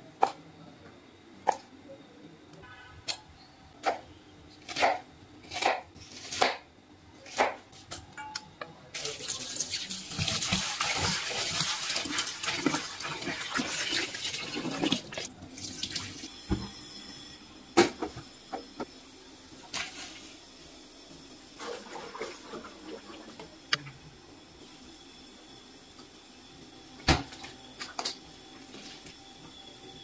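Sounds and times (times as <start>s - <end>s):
hands rinsing vegetables: 9.0s - 16.2s.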